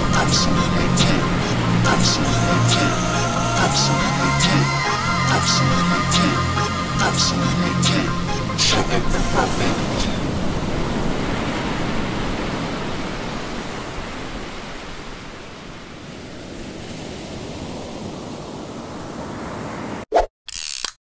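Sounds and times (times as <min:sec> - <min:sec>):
waves breaking: 0:00.0 - 0:20.0.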